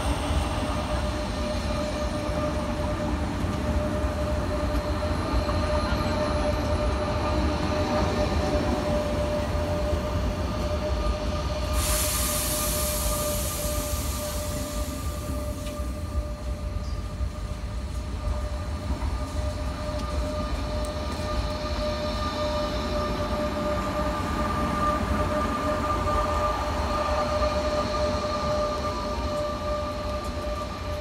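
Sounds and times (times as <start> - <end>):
electric train whine: 0.0 - 31.0
low train rumble: 0.0 - 31.0.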